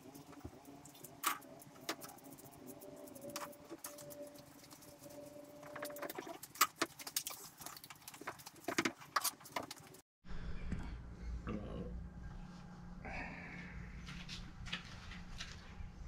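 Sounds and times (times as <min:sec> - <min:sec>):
low steady hum: 0:09.6 - 0:16.0.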